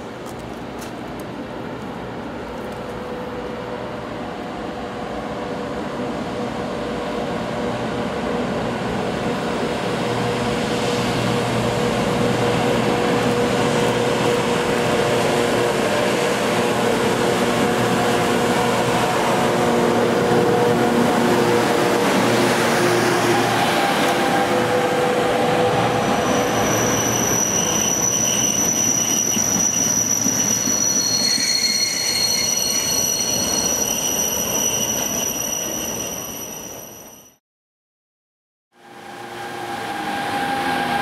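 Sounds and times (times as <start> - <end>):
wheel and rail noise: 0.0 - 3.8, 9.6 - 36.8.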